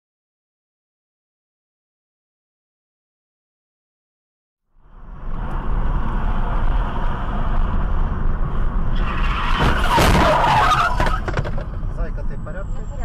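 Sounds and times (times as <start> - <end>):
car engine and road noise: 4.7 - 13.0.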